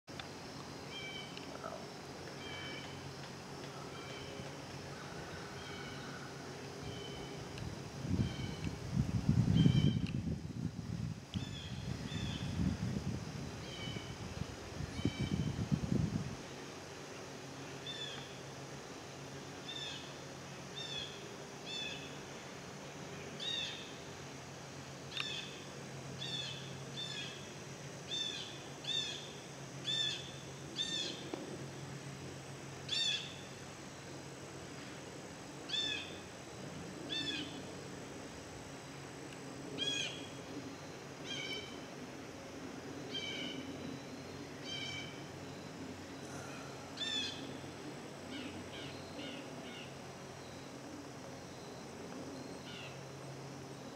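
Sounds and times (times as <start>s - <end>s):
bird calling: 46.2s - 47.6s.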